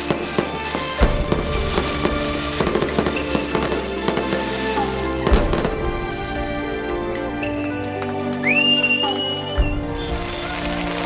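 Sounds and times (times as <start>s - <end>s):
fireworks bangs: 0.0s - 6.8s, 9.6s - 11.0s
fireworks crackling pops: 0.0s - 7.8s, 8.4s - 11.0s
music: 0.0s - 11.0s.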